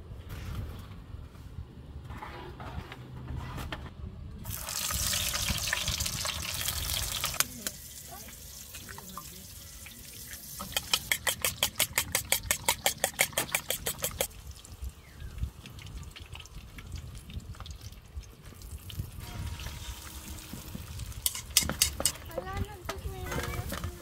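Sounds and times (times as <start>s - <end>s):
sausages sizzling in frying pan: 4.5s - 10.7s
eggs beaten in ceramic bowl: 10.6s - 14.3s.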